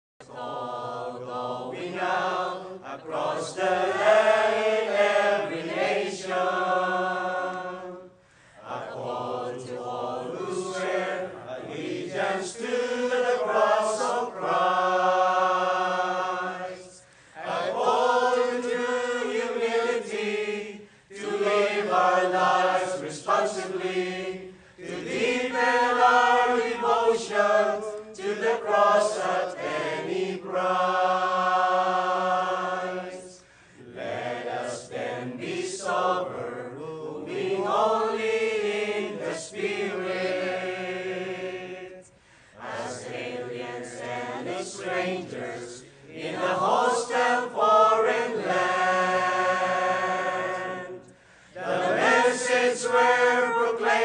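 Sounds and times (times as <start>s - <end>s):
mixed choir singing: 0.2s - 54.0s.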